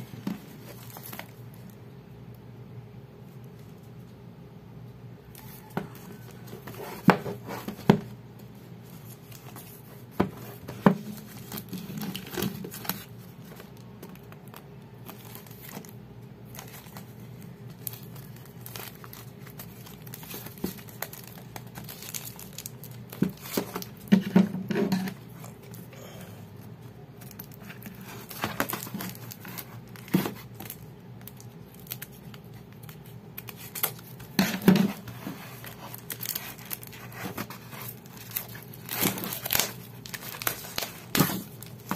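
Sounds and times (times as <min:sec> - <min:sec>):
plastic shrink wrap crinkling: 0:00.1 - 0:01.8, 0:08.8 - 0:24.3, 0:26.6 - 0:41.9.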